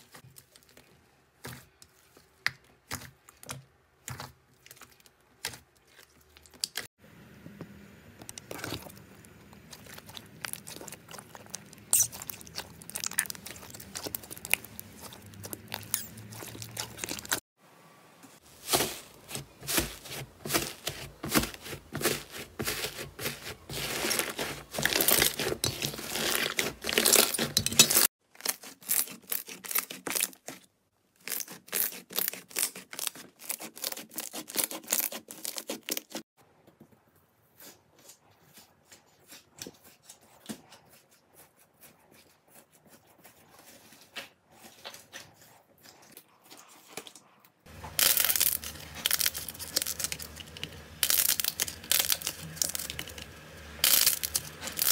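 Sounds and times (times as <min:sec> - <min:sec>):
slime squeezed and stretched: 0:09.7 - 0:17.4.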